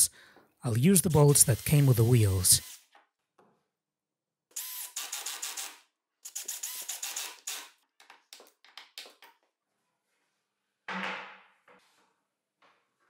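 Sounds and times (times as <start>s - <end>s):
drill-driver driving bolts: 4.6s - 7.7s.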